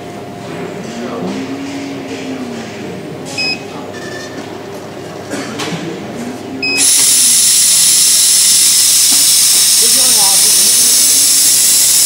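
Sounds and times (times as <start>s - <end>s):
short electronic beeps: 3.4s - 4.3s, 6.6s - 12.0s
loud steady air hiss: 6.8s - 12.0s.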